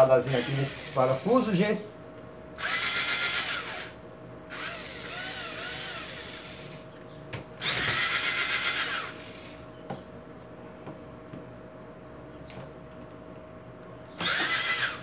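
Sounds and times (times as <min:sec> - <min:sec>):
power drill driving a screw: 0:00.3 - 0:01.2, 0:02.6 - 0:06.7, 0:07.6 - 0:09.5, 0:14.2 - 0:15.0.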